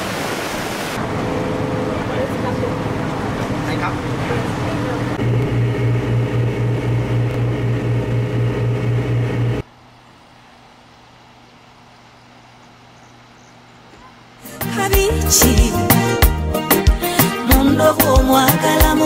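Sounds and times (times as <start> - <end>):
vehicle engine throbbing: 1.0 - 9.6.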